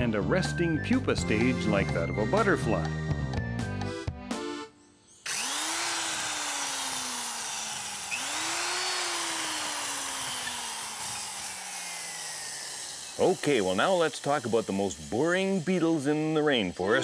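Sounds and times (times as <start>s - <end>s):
power drill boring through wood: 5.3s - 17.0s.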